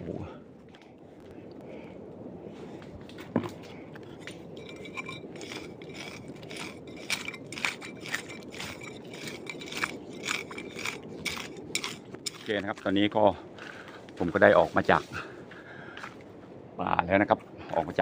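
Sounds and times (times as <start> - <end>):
footsteps crunching on rough ground: 2.6 - 16.3.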